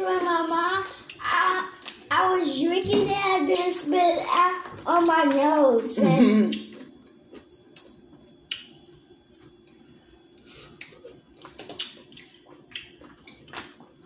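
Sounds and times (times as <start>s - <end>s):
faint steady hum: 0.0s - 14.0s
soft clicks and wet smacks: 1.8s - 2.0s, 6.5s - 14.0s.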